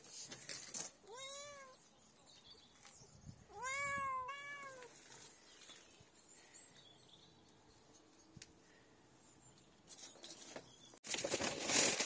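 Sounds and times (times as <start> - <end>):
cat meowing: 1.0 - 1.8, 3.5 - 5.0.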